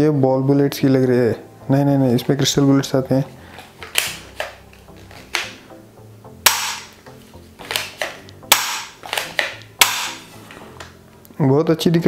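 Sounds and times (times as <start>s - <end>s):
toy pistol bangs: 3.9s - 4.6s, 6.4s - 7.0s, 7.7s - 10.3s.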